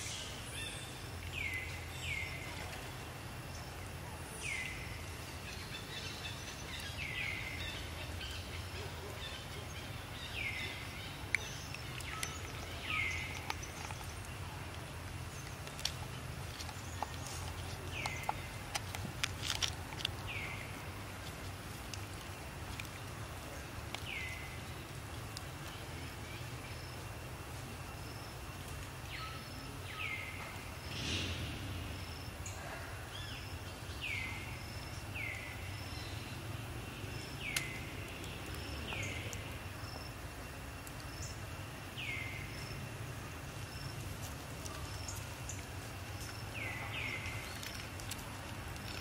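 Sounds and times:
outdoor background noise: 0:00.0 - 0:49.0
small sharp ticks: 0:11.2 - 0:23.2, 0:37.4 - 0:39.5, 0:44.0 - 0:49.0
low rumble: 0:30.8 - 0:32.4.

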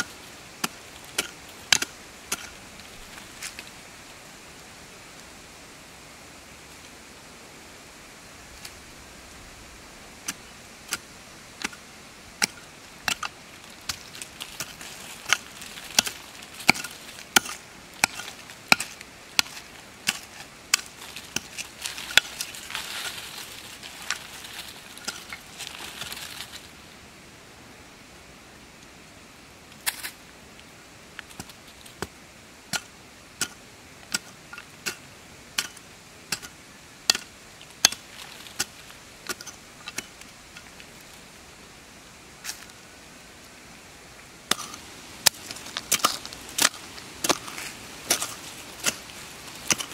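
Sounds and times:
hand digging tool chopping soil: 0:00.0 - 0:02.6, 0:10.2 - 0:11.8, 0:12.4 - 0:26.1, 0:32.7 - 0:35.0, 0:35.6 - 0:36.5, 0:37.1 - 0:40.1, 0:44.5 - 0:49.9
loose dirt scraping and rustling: 0:00.0 - 0:27.0, 0:29.6 - 0:49.9.

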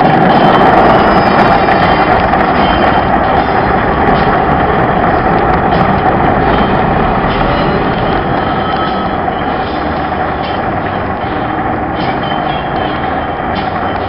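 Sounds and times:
car wash rushing noise: 0:00.0 - 0:14.0.

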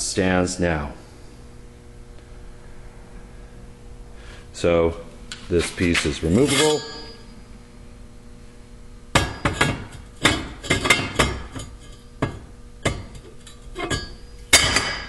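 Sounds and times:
steel tubing clanking on metal: 0:09.2 - 0:15.0.

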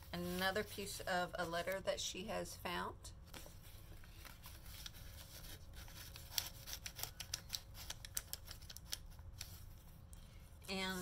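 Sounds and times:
small sharp paper crackles: 0:03.3 - 0:09.8
paper crinkling and rustling: 0:03.3 - 0:10.0.

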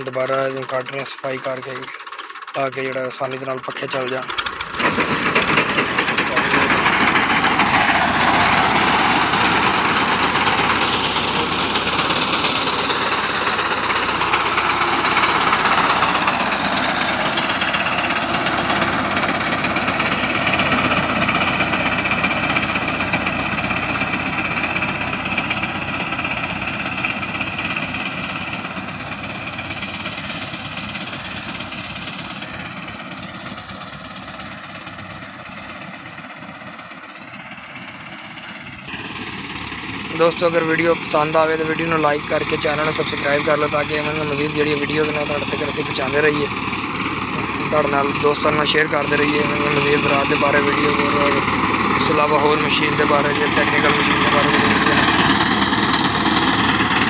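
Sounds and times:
tractor diesel engine: 0:00.0 - 0:57.0
reaper cutting wheat: 0:04.2 - 0:22.0, 0:28.1 - 0:37.0.

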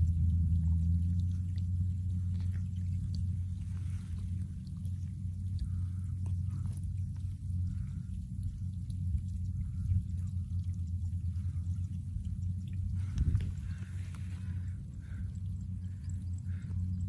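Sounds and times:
engine droning: 0:00.0 - 0:17.0
faint ticks and clicks: 0:00.0 - 0:17.0.

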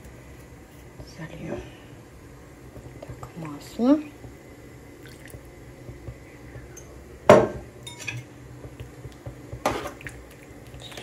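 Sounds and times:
oil trickling into a pot: 0:05.0 - 0:05.4.

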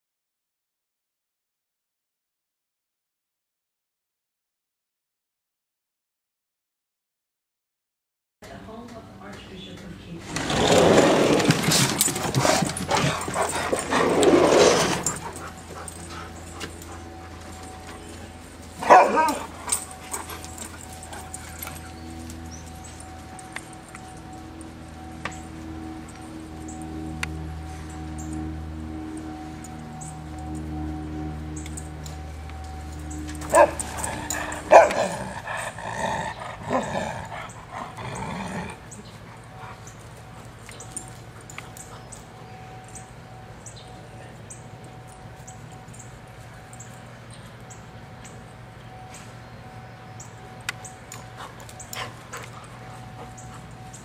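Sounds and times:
dogs whining and yipping: 0:11.2 - 0:26.8, 0:32.9 - 0:43.8, 0:50.2 - 0:54.0
dog barking sharply: 0:18.8 - 0:19.4
dog yowling: 0:18.8 - 0:20.3, 0:33.4 - 0:35.4.

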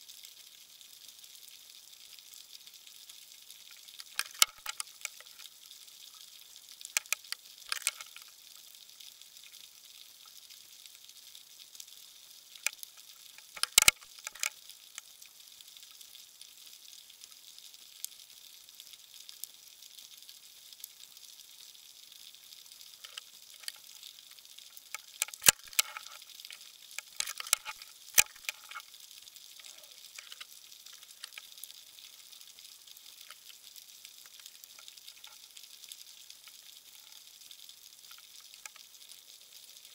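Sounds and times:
underwater crackling hiss: 0:02.9 - 0:11.3, 0:12.0 - 0:16.0, 0:22.3 - 0:39.9
sharp underwater clicks: 0:03.7 - 0:05.5, 0:06.9 - 0:08.3, 0:12.6 - 0:15.1, 0:23.0 - 0:24.0, 0:24.7 - 0:28.9, 0:29.6 - 0:31.6.

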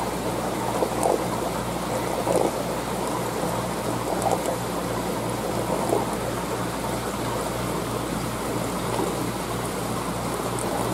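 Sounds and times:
aquarium water circulating: 0:00.0 - 0:10.9.

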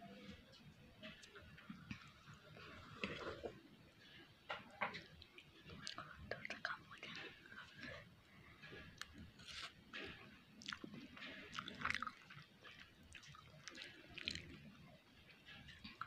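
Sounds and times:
person chewing noodles: 0:08.6 - 0:16.0.

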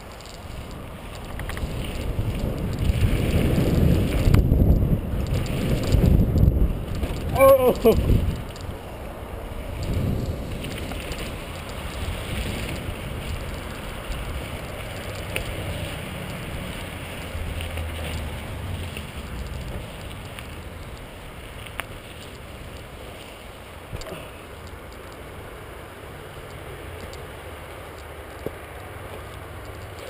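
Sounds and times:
bike rattling clicks: 0:00.0 - 0:03.0
low rumble from bumps: 0:00.0 - 0:07.4
wind buffeting microphone: 0:00.0 - 0:24.0
bike tyres crunching on gravel: 0:00.0 - 0:30.0.

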